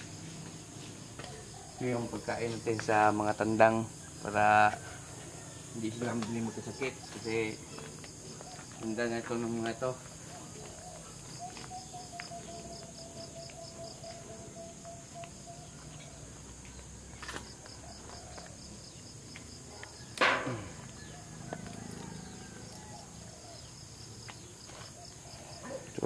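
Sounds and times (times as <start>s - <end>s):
insects chirring: 0.0s - 26.0s
sharp knock: 20.2s - 20.7s.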